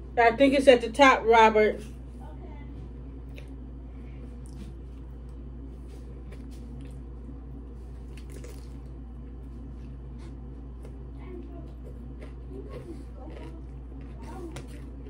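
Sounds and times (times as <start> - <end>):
steady low hum: 0.0 - 15.0
wet chewing of cucumber: 4.2 - 15.0.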